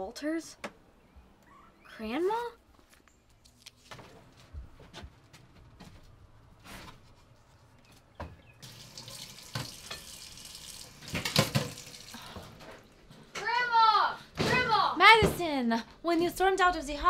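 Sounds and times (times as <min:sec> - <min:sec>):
faint knocks and shuffles: 0:02.0 - 0:08.6
tap water running into sink: 0:08.6 - 0:12.4.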